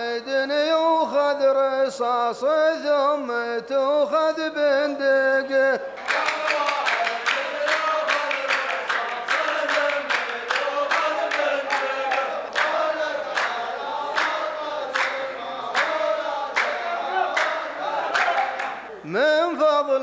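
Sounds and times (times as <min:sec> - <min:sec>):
men chanting in unison: 0:00.0 - 0:20.0
hand claps: 0:06.0 - 0:18.8.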